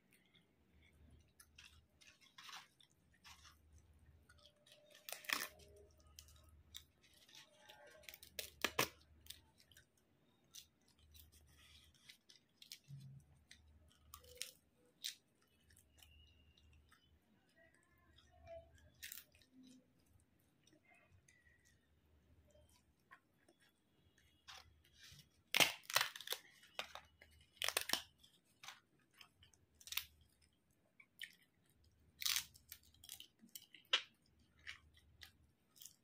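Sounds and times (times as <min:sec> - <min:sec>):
chewing and crunching: 0:00.0 - 0:36.0
cracker cracking by hand: 0:01.4 - 0:16.5, 0:25.2 - 0:30.4, 0:32.2 - 0:36.0.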